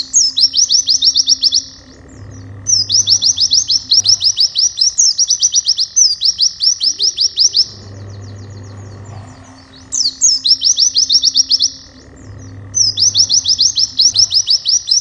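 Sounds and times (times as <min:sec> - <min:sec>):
bird singing rapid sharp chirps: 0:00.0 - 0:15.0.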